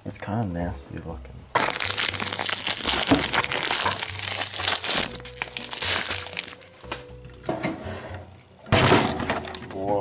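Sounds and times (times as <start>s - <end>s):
background music: 0.0s - 10.0s
plastic wrapper crinkling: 1.6s - 7.0s, 8.9s - 9.8s.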